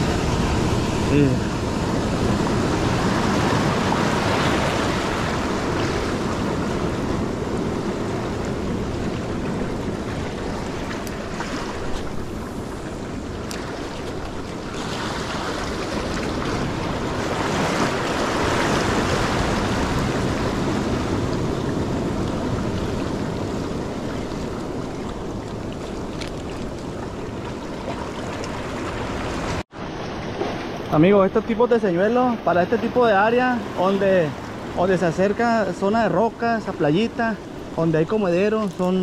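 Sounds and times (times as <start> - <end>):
wind on microphone: 0.0 - 29.6
ocean surf washing over rocks: 0.0 - 39.0.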